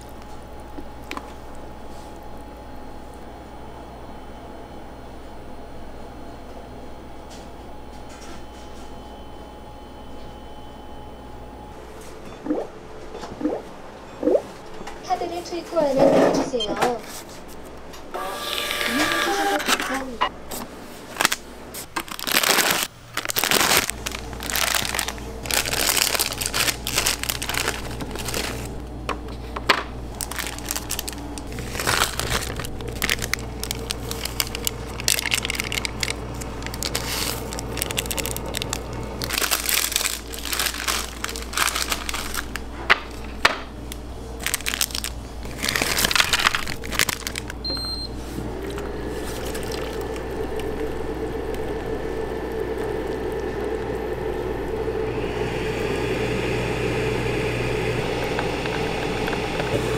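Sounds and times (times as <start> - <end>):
plastic wrapper crinkling: 21.1 - 28.8, 30.1 - 47.6, 48.7 - 51.0
hot water pouring into bowl: 48.6 - 59.9.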